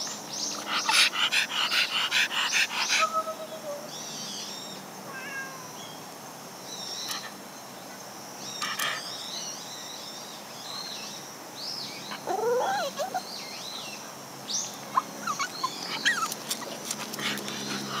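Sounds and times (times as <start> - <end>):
cat meowing: 5.1 - 5.8.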